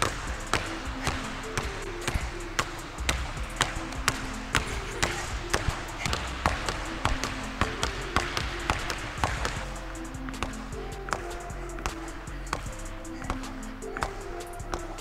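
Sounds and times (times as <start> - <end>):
background music with steady beat: 0.0 - 15.0.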